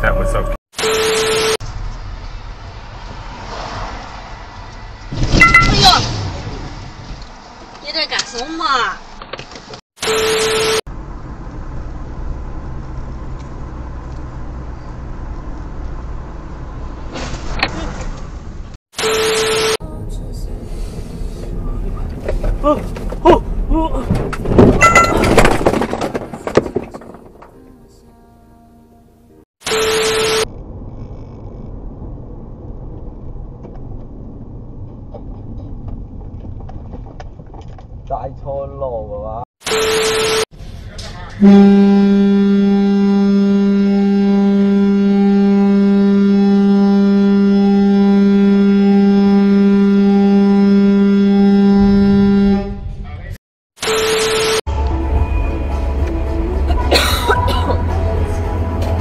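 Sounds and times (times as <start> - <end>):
car engine and tyre rumble: 1.6 - 9.8, 10.9 - 19.2, 19.8 - 28.4, 29.0 - 41.5, 54.2 - 59.0.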